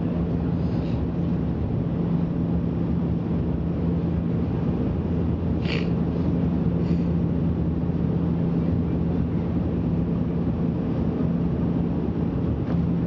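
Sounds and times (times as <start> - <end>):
rush of airflow: 0.0 - 9.1
turboprop engines droning: 0.0 - 13.0.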